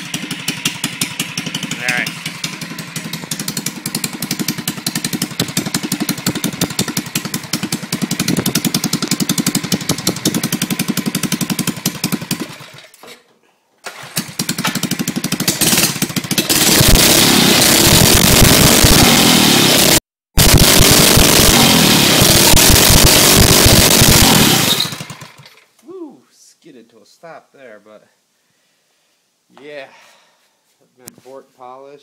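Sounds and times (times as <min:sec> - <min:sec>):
small engine putting and revving: 0:00.0 - 0:13.0, 0:13.9 - 0:25.7.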